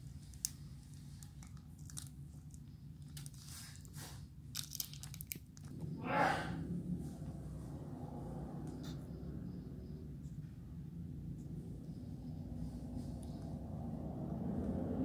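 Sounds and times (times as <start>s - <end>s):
candy wrapper crinkling: 0.2s - 5.7s.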